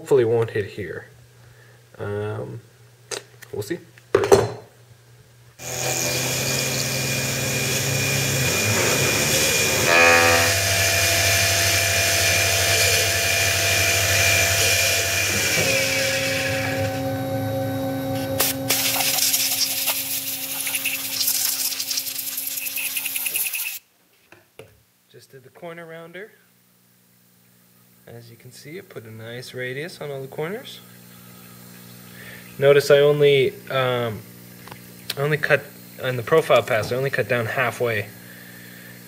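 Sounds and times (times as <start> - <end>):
hiss of metal cutting: 5.6 - 17.0, 18.1 - 23.8
milling spindle whining: 5.6 - 23.8.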